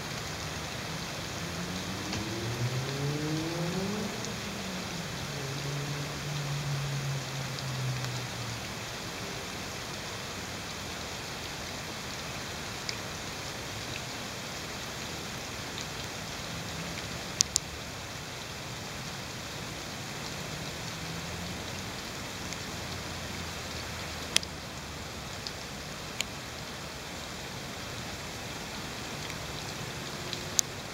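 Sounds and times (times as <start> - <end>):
steady rain hiss: 0.0 - 30.9
single raindrop ticks: 1.8 - 4.6, 7.4 - 8.6, 12.3 - 13.2, 16.9 - 17.8, 22.4 - 26.4, 29.0 - 30.8.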